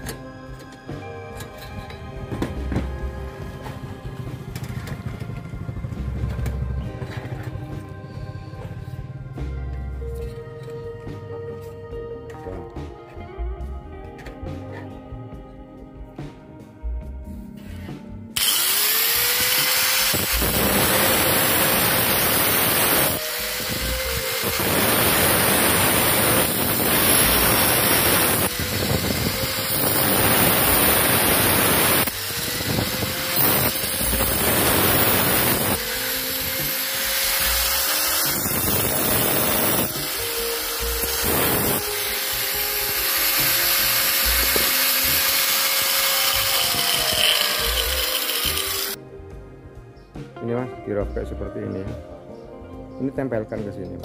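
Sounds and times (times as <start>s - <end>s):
angle grinder whining up: 18.4s - 49.0s
grinder disc cutting metal: 18.4s - 49.0s.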